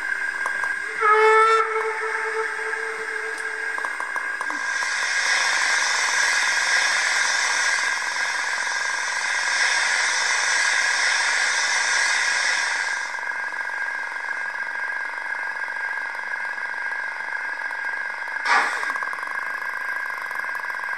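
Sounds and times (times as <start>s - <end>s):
steam hiss: 0.0s - 13.6s, 18.4s - 19.1s
model locomotive whine: 0.0s - 20.9s.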